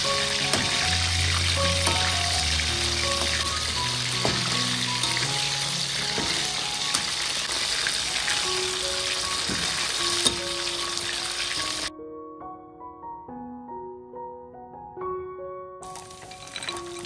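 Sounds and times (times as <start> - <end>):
food sizzling in hot oil: 0.0 - 11.9, 15.9 - 17.0
soft background music: 0.0 - 17.0
sharp knocks: 3.1 - 5.4, 9.4 - 10.6.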